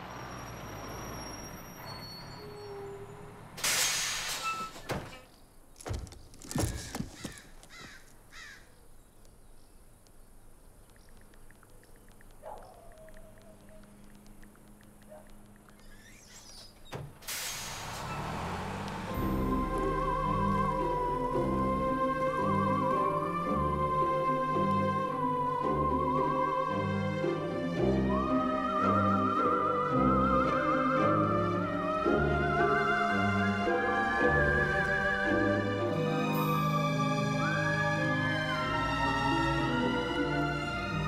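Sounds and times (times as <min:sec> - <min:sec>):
sharp knocks and thuds: 0:04.8 - 0:08.0.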